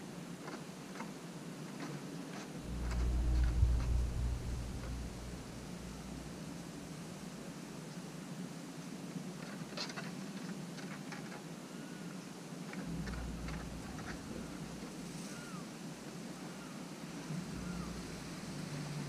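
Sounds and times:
low rumble: 0:02.6 - 0:07.6, 0:12.8 - 0:15.6, 0:17.2 - 0:19.0
steady hiss: 0:11.8 - 0:19.0.

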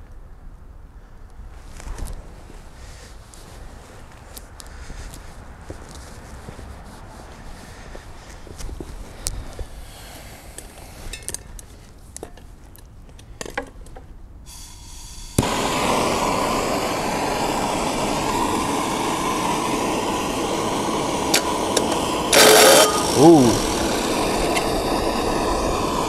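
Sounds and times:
gas torch hissing: 0:09.0 - 0:11.4, 0:14.5 - 0:26.0
gas torch lighting click: 0:14.5 - 0:26.0.

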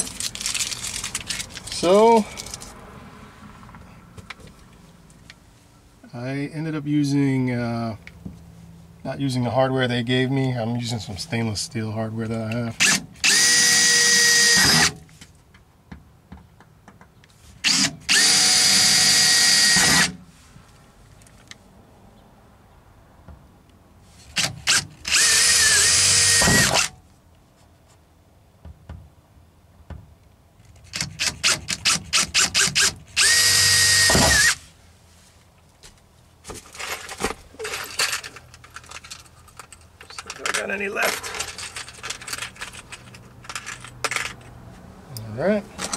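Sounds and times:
cordless drill on sheet metal: 0:12.8 - 0:15.0, 0:17.6 - 0:20.2, 0:24.3 - 0:26.9, 0:30.9 - 0:34.7
drill trigger pulses: 0:12.8 - 0:15.0, 0:17.7 - 0:20.2, 0:24.6 - 0:26.9, 0:31.2 - 0:34.6
light rattling: 0:36.6 - 0:44.6.

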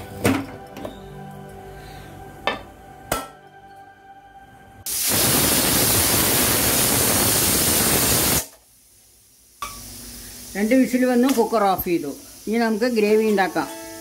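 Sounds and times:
pressure cooker steam hissing: 0:04.9 - 0:14.0.

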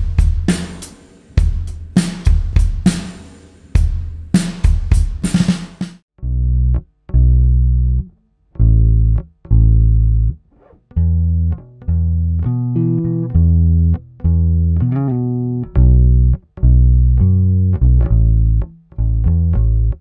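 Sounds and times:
bass guitar notes: 0:00.0 - 0:00.8, 0:01.4 - 0:02.9, 0:06.2 - 0:20.0.

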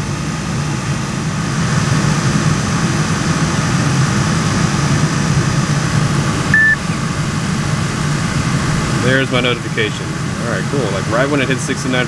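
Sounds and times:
car blower fan running: 0:00.0 - 0:12.0.

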